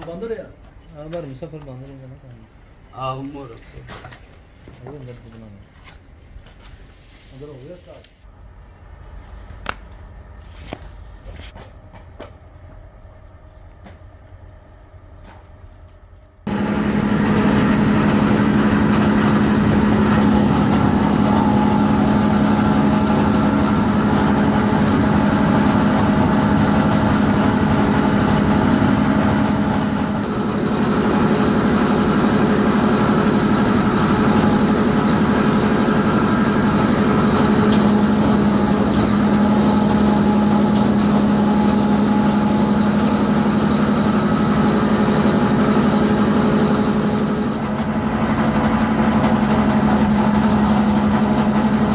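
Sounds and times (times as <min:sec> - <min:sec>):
large machine motor humming: 0:16.4 - 0:51.9.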